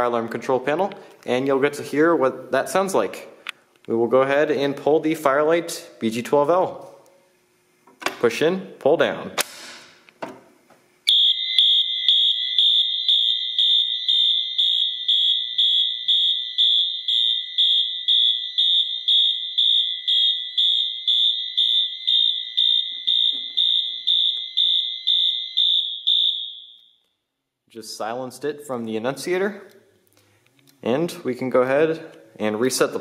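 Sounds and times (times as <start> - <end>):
fire alarm horn pulsing: 11.1 - 27.1.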